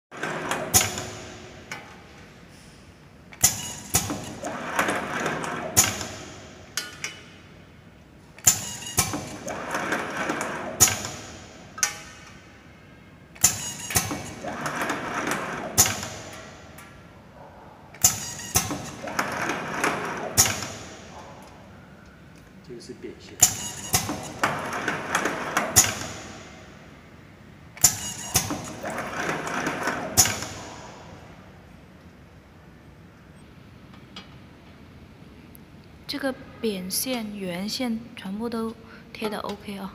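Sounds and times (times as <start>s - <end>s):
labeling machine metallic clacks: 3.3s - 7.3s, 13.4s - 17.0s, 18.0s - 20.9s, 23.4s - 26.4s, 27.8s - 30.9s
mechanical clatter: 3.3s - 7.4s, 8.4s - 12.6s, 13.3s - 17.0s, 17.9s - 21.2s, 23.4s - 26.8s, 27.8s - 31.2s.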